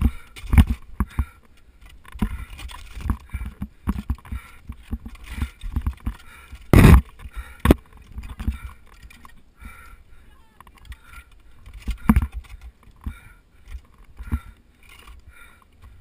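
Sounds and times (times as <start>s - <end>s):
knocks and thuds against ice: 2.2s - 8.6s.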